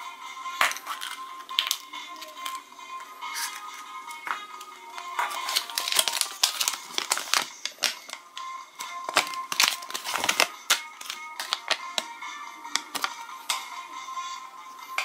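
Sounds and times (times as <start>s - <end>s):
background music: 0.0s - 15.0s
paper leaflet crinkling: 5.2s - 8.2s, 9.1s - 12.0s.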